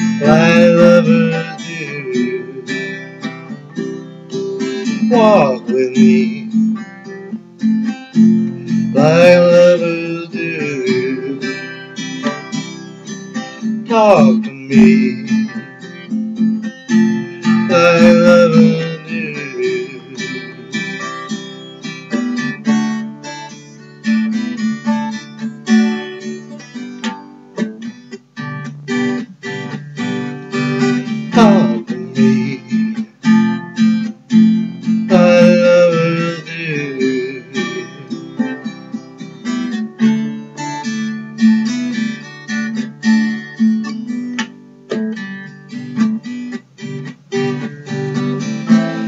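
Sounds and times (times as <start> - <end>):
person singing: 0.0 - 3.2, 4.6 - 6.8, 8.6 - 12.4, 13.5 - 16.1, 17.0 - 21.1, 30.5 - 39.1
acoustic guitar strummed: 0.0 - 49.0.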